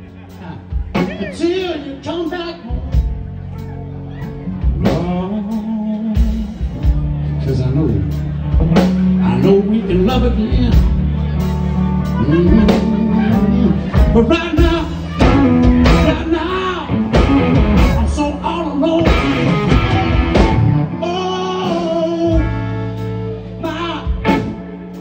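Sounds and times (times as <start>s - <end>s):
bass: 0.0s - 25.0s
drums: 0.0s - 25.0s
electric guitar: 0.0s - 25.0s
person singing: 3.7s - 7.0s, 8.5s - 25.0s.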